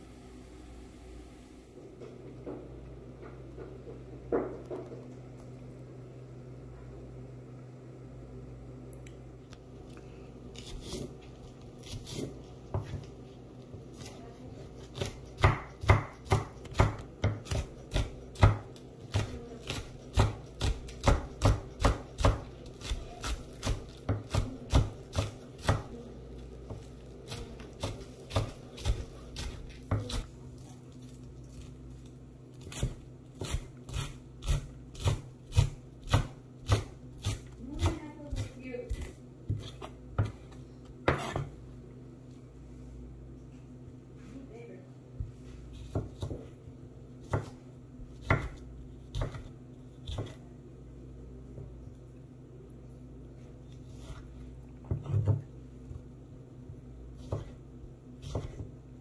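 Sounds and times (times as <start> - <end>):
knife chopping on wooden block: 14.9 - 25.9, 26.7 - 30.3, 32.6 - 40.4, 45.9 - 46.5, 48.2 - 50.4, 57.2 - 57.6, 58.2 - 58.7.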